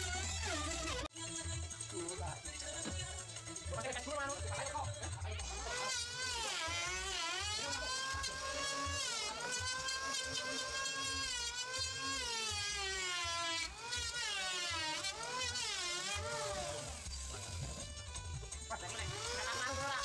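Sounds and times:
electric hand planer cutting wood: 0:00.0 - 0:01.1, 0:05.4 - 0:20.0.

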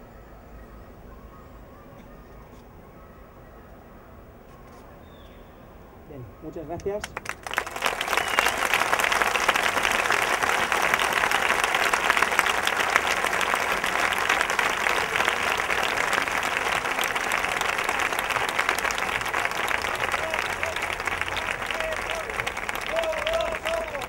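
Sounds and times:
large crowd applauding: 0:06.8 - 0:24.0.

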